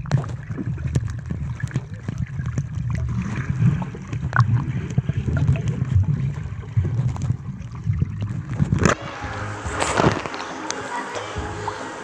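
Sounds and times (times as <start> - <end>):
small clicks from swimmers kicking: 0.0 - 9.0
underwater rumble of moving water: 0.0 - 10.5.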